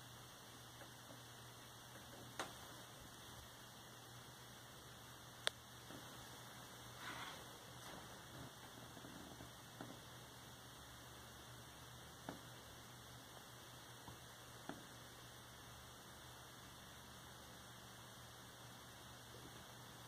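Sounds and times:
faint clicks: 5.4s - 6.0s.

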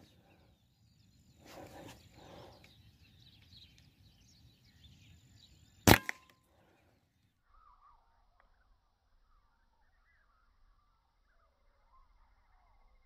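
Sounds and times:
faint bird chirping: 0.0s - 13.0s
air rifle shot crack: 5.8s - 6.3s.

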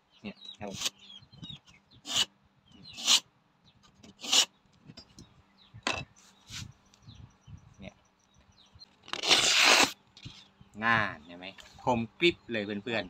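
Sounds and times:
knife rasping through sharpener: 0.7s - 1.0s, 2.1s - 2.3s, 2.9s - 3.2s, 4.1s - 4.5s, 9.1s - 10.0s.

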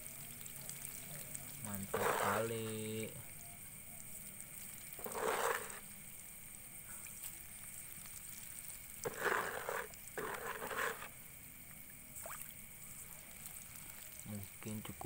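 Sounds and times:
fish splashing and churning water: 0.0s - 3.0s, 4.6s - 5.8s, 7.2s - 14.3s.

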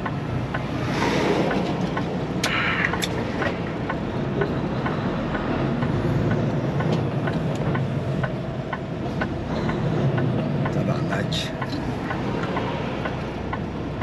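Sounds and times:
light ticking: 0.0s - 14.0s.

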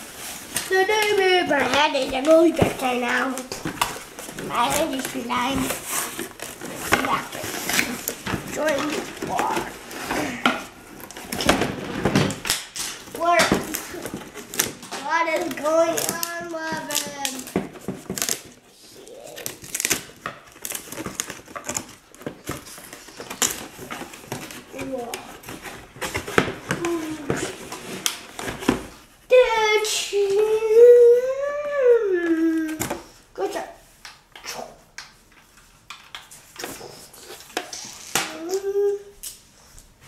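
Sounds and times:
plastic toy and box handled: 0.0s - 30.6s, 32.2s - 39.4s
cardboard and packaging crinkling: 0.0s - 31.3s.

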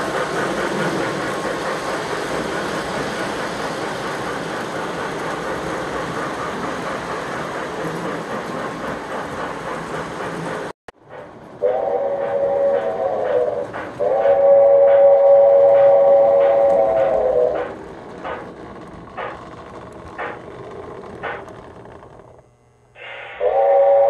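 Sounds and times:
model trains rumbling and clattering: 0.0s - 22.7s
model train steam whistle: 11.6s - 17.6s, 23.0s - 24.0s.

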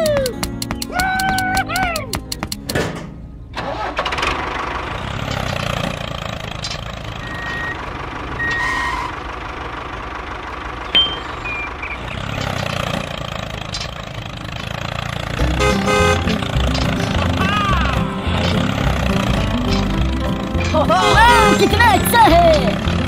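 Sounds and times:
sharp click: 0.0s - 3.1s
tractor engine rumbling: 0.0s - 23.0s
short high beeps: 11.0s - 12.0s.

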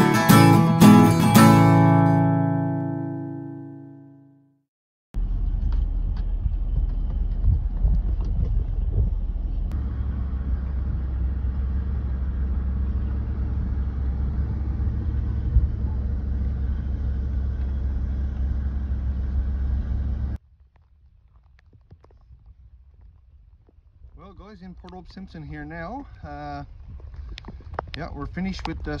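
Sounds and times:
pickup truck engine rumble: 5.2s - 20.4s.

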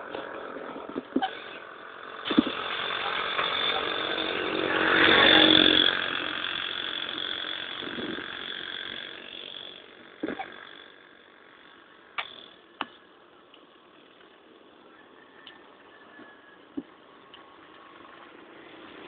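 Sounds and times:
motorcycle engine passing by: 0.0s - 9.2s.

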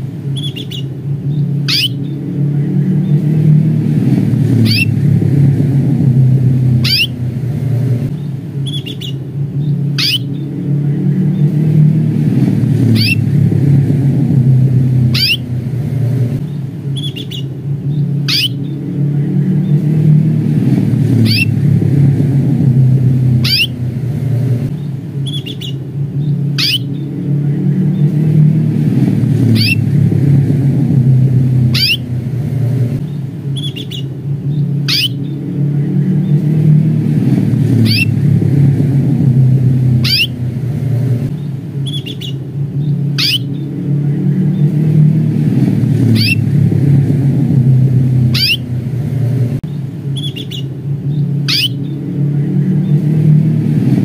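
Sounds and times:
steady low rumble: 0.0s - 54.0s
canary chirping calls: 0.3s - 2.2s, 4.5s - 5.0s, 6.8s - 7.2s, 8.2s - 10.5s, 12.8s - 13.3s, 14.8s - 15.6s, 16.4s - 18.8s, 21.1s - 21.6s, 23.4s - 23.9s, 24.8s - 27.1s, 29.4s - 29.9s, 31.6s - 32.2s, 33.0s - 35.4s, 37.8s - 38.2s, 40.0s - 40.5s, 41.4s - 43.7s, 46.0s - 46.5s, 48.2s - 48.8s, 50.1s - 52.0s.

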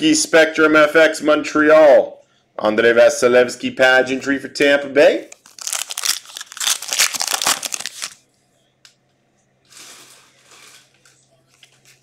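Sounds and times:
cards rustling: 5.3s - 8.2s
foil wrapper crinkling: 5.3s - 8.2s.

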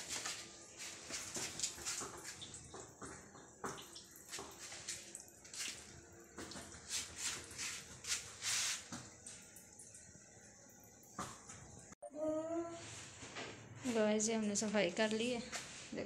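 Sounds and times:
broom sweeping a tiled floor: 0.0s - 2.4s, 4.3s - 5.9s, 6.8s - 9.1s, 12.8s - 14.3s, 15.4s - 16.0s.

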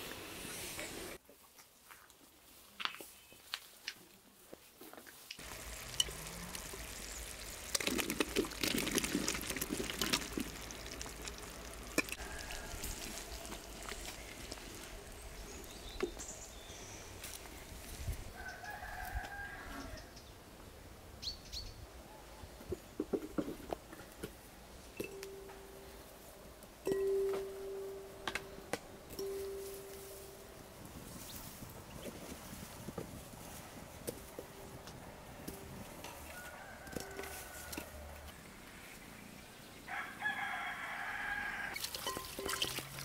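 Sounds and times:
rustling: 0.8s - 18.3s
rooster crowing: 12.2s - 14.0s, 18.4s - 20.1s, 36.0s - 38.3s, 39.9s - 41.8s.

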